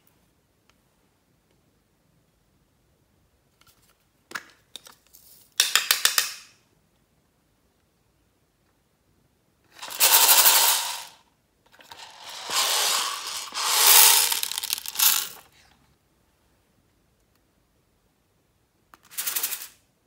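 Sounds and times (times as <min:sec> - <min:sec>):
plastic beads rattling into glass tray: 0:09.8 - 0:11.2, 0:11.8 - 0:15.4.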